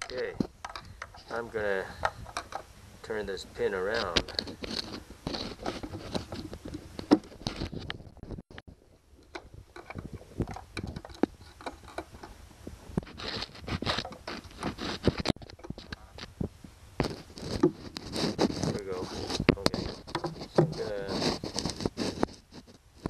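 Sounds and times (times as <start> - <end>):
small metal clicks and taps: 0.0 - 1.2
metal scraping: 0.0 - 8.4, 9.2 - 16.3, 17.0 - 23.0.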